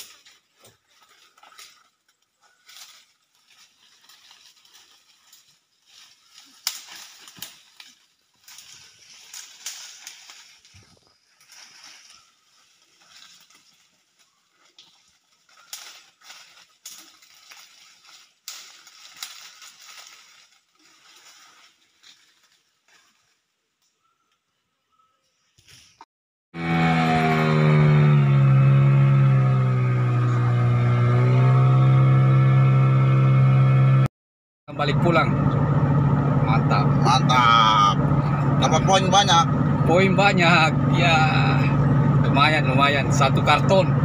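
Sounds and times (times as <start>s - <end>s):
leaf fire crackling and snapping: 0.0s - 23.4s
dry leaves rustling: 0.0s - 24.2s.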